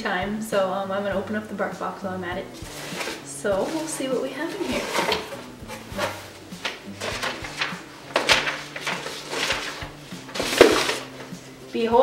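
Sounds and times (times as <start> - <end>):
cardboard and paper rustling: 2.6 - 11.6
tape pulled off cardboard: 10.3 - 11.2.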